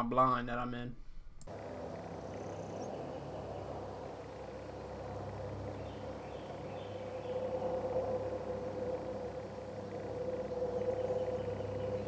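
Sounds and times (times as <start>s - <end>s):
field ambience: 0.9s - 12.0s
faint bird chirps: 5.7s - 12.0s.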